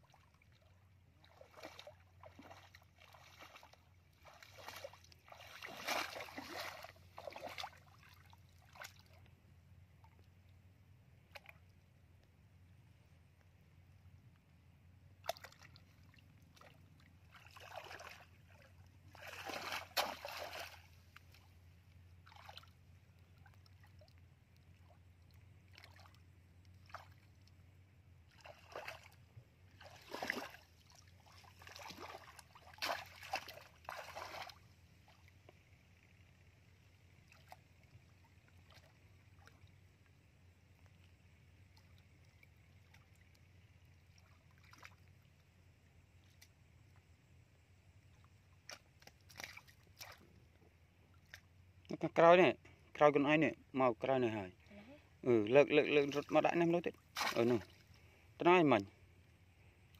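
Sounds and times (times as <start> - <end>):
muddy water splashing: 0.0 - 11.8, 15.1 - 47.1, 48.0 - 51.9, 54.0 - 59.0
faint steady hum: 0.0 - 59.9.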